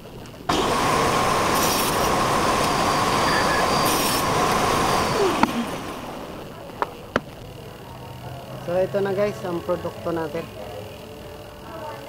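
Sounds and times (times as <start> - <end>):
angle grinder motor whining: 0.5 - 7.4.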